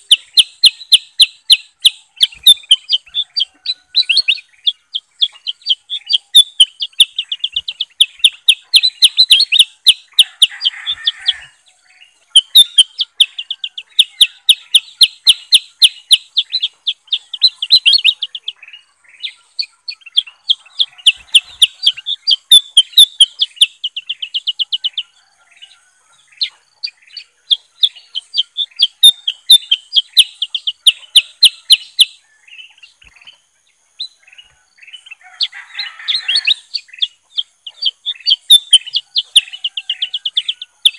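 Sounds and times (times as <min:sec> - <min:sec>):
caged birds chirping rapidly: 0:00.0 - 0:40.9.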